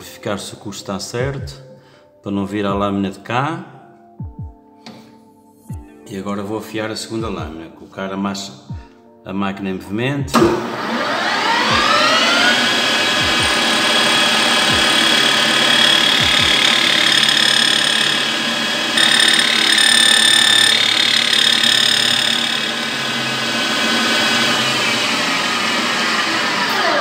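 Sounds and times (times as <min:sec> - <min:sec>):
lathe grinding wheel whining: 0:10.6 - 0:27.0.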